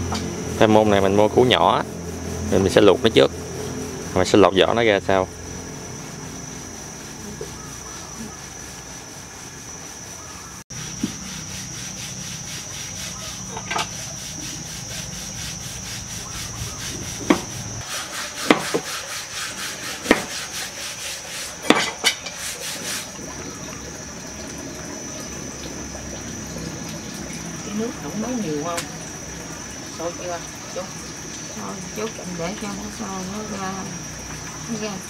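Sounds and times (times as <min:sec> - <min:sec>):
knife scraping cutting board: 0:10.8 - 0:23.1
knife knocking on board: 0:17.2 - 0:17.5, 0:18.4 - 0:18.9, 0:20.1 - 0:20.3.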